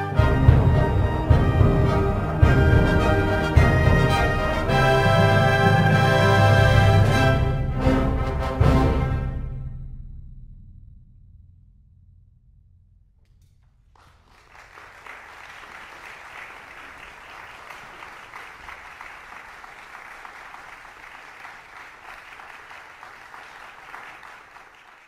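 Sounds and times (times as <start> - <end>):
audience applauding: 0.0 - 7.5, 13.9 - 25.0
wind band low note: 0.0 - 11.2.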